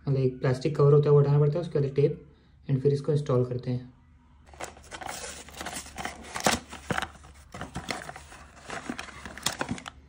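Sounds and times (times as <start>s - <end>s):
cardboard box tearing and rustling: 4.5s - 9.9s.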